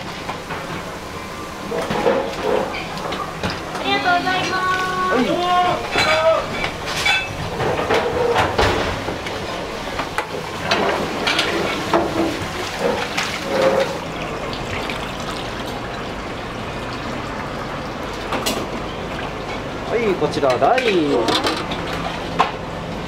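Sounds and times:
water running and splashing in sink: 1.6 - 22.4
bowls and utensils clinking: 5.8 - 8.5, 20.5 - 21.9.

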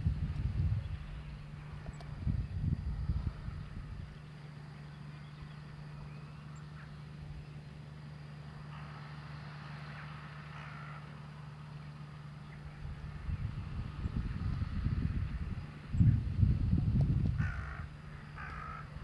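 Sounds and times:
wind buffeting microphone: 0.0 - 4.6, 12.6 - 19.0
distant tractor engine hum: 0.0 - 19.0.

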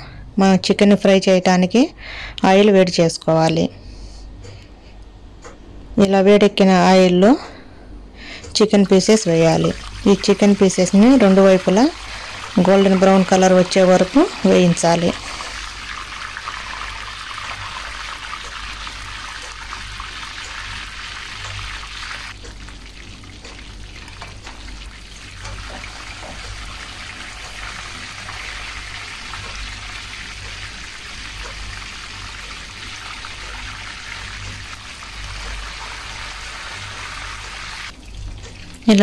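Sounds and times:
chicken sizzling in hot oil: 8.8 - 38.8.

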